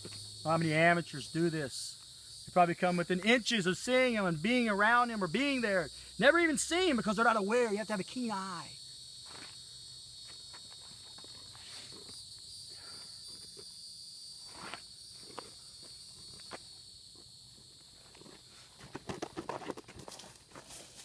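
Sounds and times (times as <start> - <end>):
insects chorus: 0.0 - 21.0
shuffling steps: 14.4 - 21.0
footsteps on gravel: 14.5 - 21.0.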